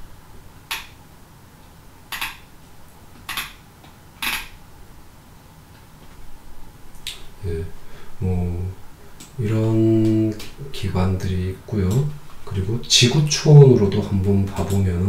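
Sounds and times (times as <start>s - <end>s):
faint background hiss: 0.0s - 15.0s.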